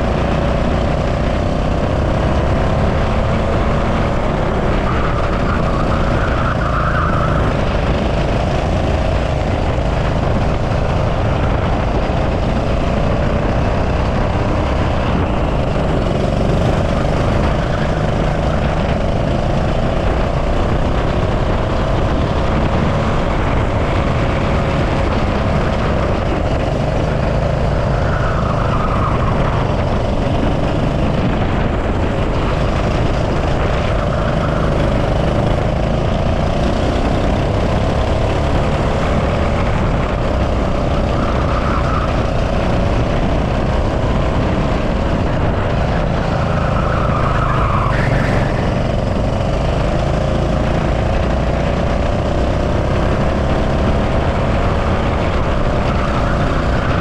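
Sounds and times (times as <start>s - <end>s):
go-kart engine running hard: 0.0s - 57.0s
wind rumble on microphone: 7.1s - 47.3s.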